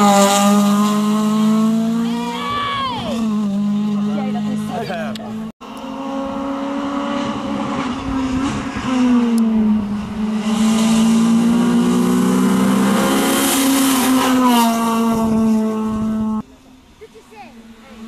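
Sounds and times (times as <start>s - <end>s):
rally car engine revving: 0.0s - 16.4s.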